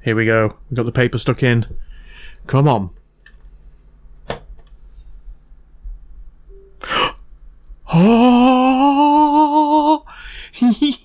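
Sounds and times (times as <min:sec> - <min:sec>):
man's sharp intake of breath: 0:01.8 - 0:02.4, 0:06.8 - 0:07.2, 0:10.1 - 0:10.6
man exclaiming ooh: 0:07.9 - 0:11.0.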